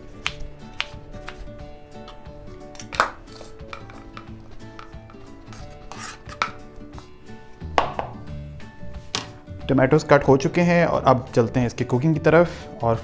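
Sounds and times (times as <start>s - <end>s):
knife knocking on cutting board: 7.7s - 8.2s.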